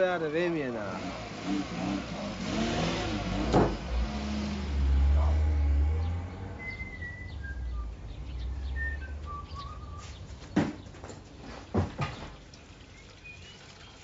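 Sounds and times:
car engine rumble: 0.0s - 12.5s
high whistled notes: 6.5s - 8.0s, 8.6s - 10.2s.

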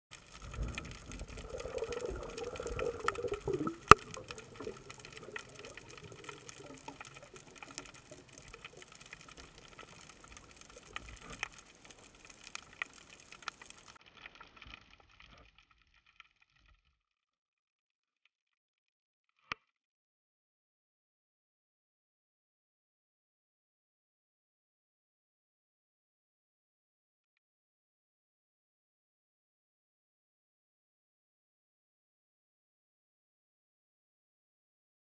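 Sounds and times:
faint underwater hiss: 0.1s - 14.0s
sharp underwater clicks: 0.1s - 14.6s.

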